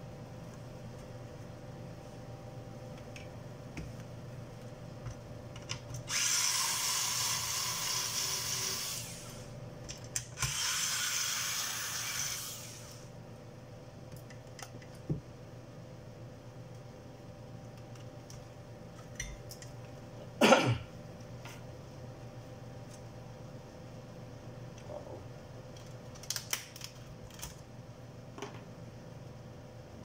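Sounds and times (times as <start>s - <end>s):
electric screwdriver running: 6.1s - 9.2s, 10.4s - 13.0s.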